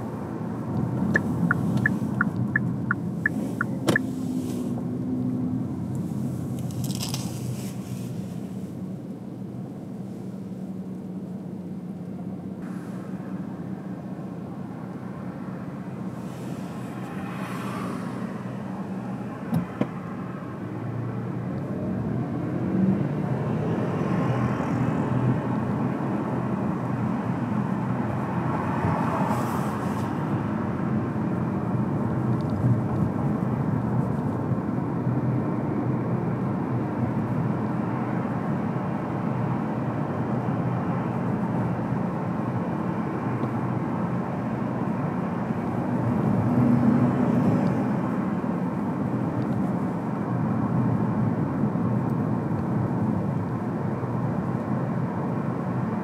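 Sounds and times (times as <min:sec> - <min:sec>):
car engine hum: 0:00.0 - 0:23.8
road noise: 0:00.0 - 0:56.0.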